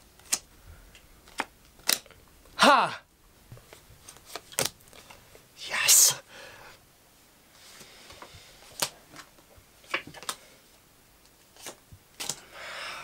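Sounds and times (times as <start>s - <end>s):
playing cards snapping onto pile: 1.2s - 2.1s, 11.6s - 12.4s.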